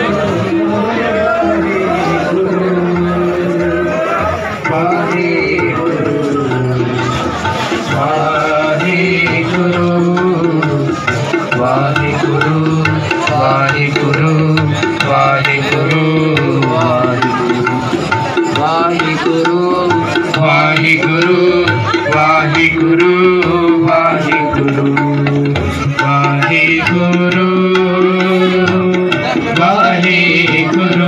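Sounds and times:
person singing a hymn: 0.0 - 7.0, 7.9 - 17.8
tabla: 0.0 - 31.0.

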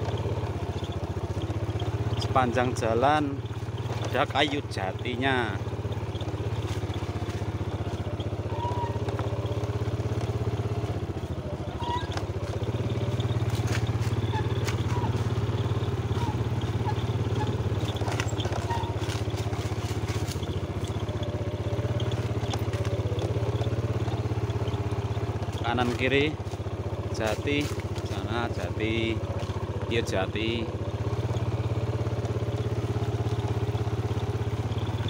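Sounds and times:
motorcycle engine running: 0.0 - 35.0
motorcycle clattering over ground: 3.4 - 28.2.

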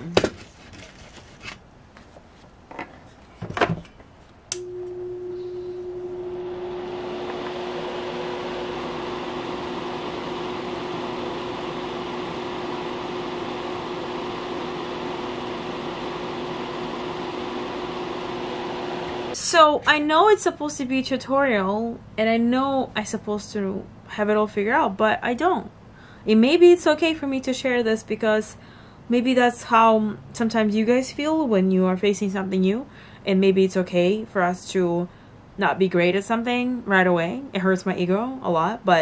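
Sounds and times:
electric fan humming: 3.4 - 38.7
electric fan switch click: 4.5 - 4.9.

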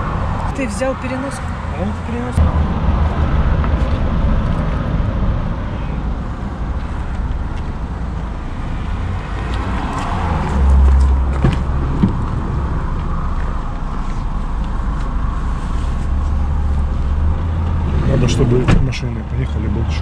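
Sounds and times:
vehicle passing loudly: 0.0 - 14.3
highway traffic rumble: 0.0 - 20.0.

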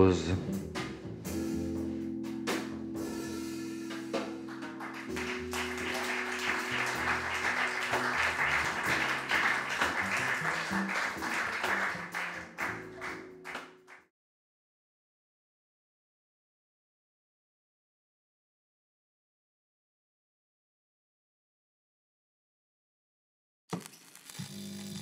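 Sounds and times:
jazz trio playing: 0.0 - 14.0
audience applause: 4.5 - 14.1.

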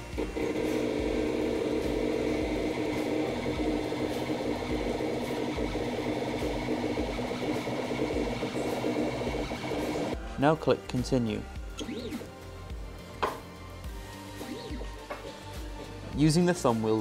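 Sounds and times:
stepper motor whine: 0.0 - 10.2.

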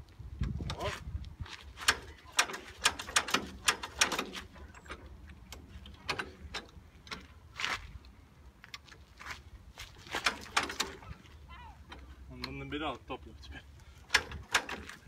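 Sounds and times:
tractor engine hand-cranked clanking: 1.8 - 7.5, 9.8 - 15.0.

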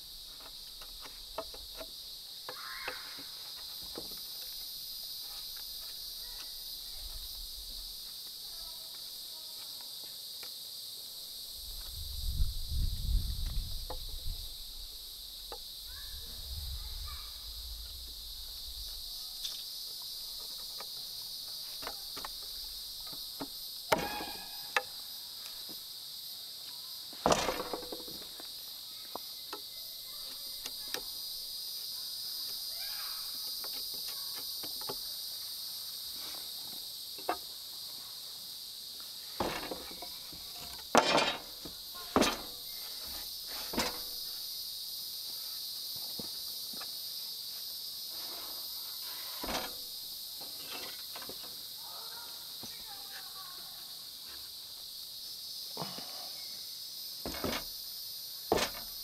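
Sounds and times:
insect chorus: 0.0 - 59.0
low rumble: 16.0 - 19.1.

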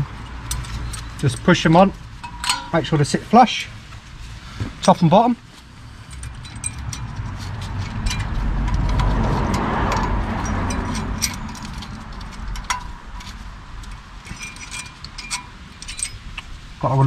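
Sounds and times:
car passing: 5.6 - 16.9.

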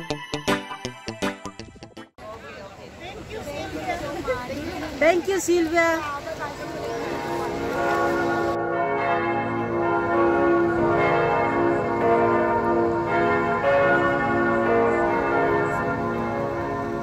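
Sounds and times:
church bells pealing: 6.2 - 17.0.

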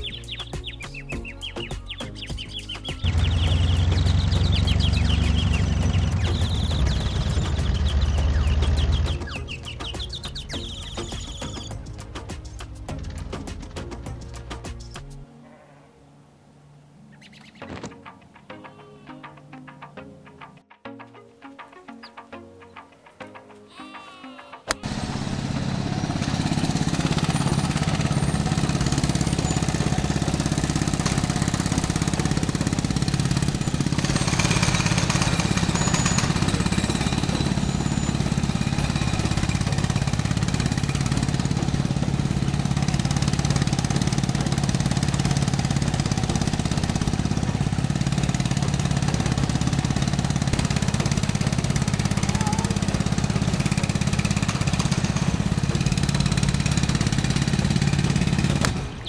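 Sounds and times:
small motor running: 3.0 - 10.0, 24.8 - 59.0.

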